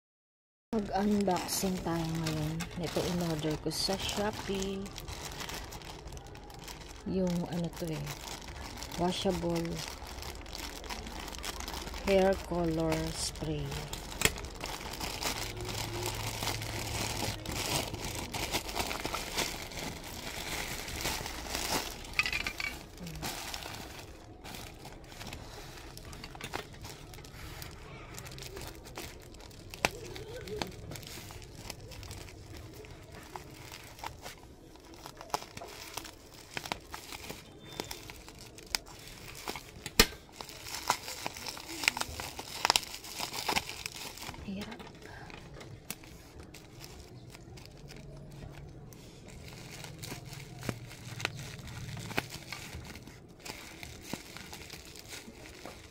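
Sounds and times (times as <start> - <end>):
plastic packaging crinkling: 0.8 - 55.9
sharp plastic crackles: 0.8 - 55.9.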